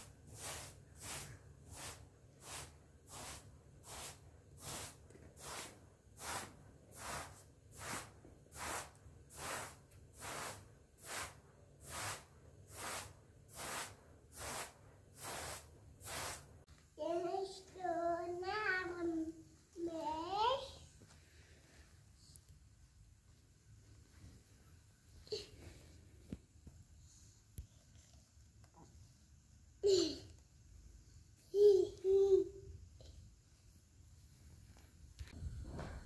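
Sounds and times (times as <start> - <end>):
broom sweeping carpet: 0.0 - 16.7, 23.4 - 27.3
young child's voice: 17.0 - 20.9, 31.5 - 32.7.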